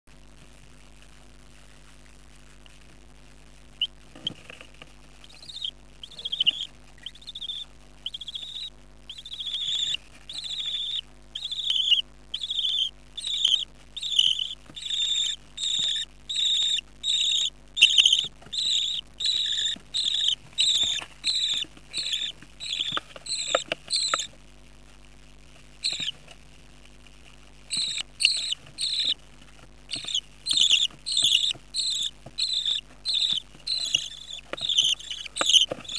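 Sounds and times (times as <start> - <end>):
chicks cheeping: 5.2 - 24.3, 25.8 - 26.2, 27.6 - 29.2, 29.9 - 35.9.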